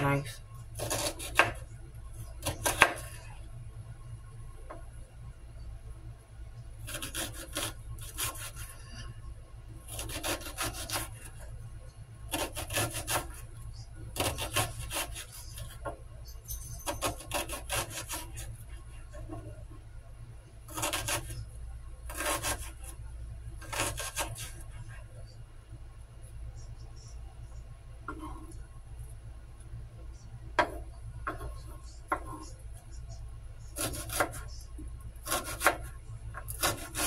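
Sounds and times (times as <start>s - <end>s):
knife cutting vegetables on board: 0.8s - 1.6s, 2.4s - 3.2s, 6.8s - 8.7s, 9.9s - 11.4s, 12.3s - 13.4s, 14.2s - 15.9s, 16.8s - 18.5s, 20.7s - 21.4s, 22.1s - 22.8s, 23.6s - 24.6s, 33.7s - 34.5s, 35.2s - 37.0s.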